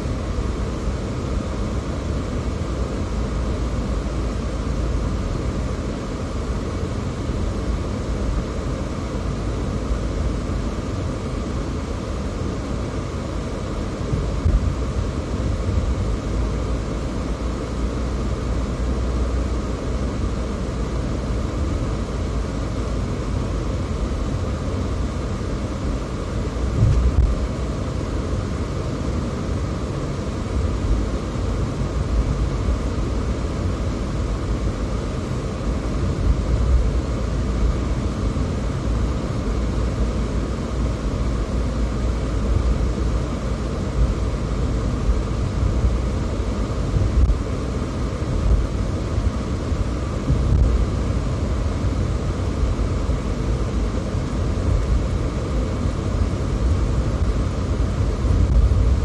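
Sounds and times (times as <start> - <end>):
car engine and tyre rumble: 0.0 - 59.0
low thump: 26.8 - 27.3.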